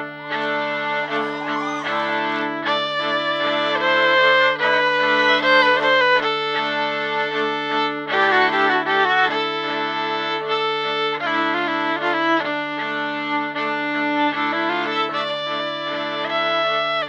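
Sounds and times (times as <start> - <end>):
layered bowed viola lines: 0.0 - 17.0.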